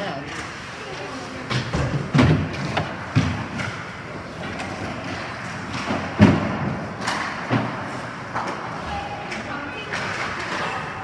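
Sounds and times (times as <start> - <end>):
thuds against hockey boards: 5.7 - 7.8.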